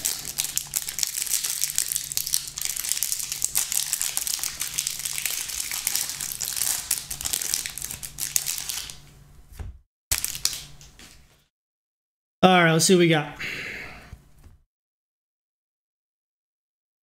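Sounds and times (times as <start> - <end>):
plastic wrapper crinkling: 0.0 - 9.0, 10.1 - 11.5.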